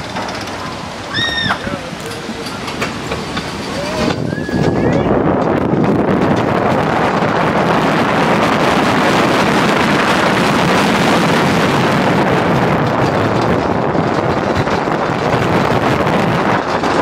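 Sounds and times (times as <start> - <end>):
roller coaster rumbling on track: 0.0 - 17.0
wind buffeting microphone: 0.0 - 17.0.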